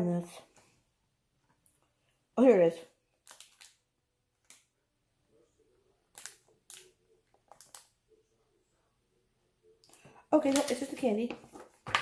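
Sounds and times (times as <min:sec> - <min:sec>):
plastic wrapper crinkling: 0:03.2 - 0:03.8, 0:06.1 - 0:07.9.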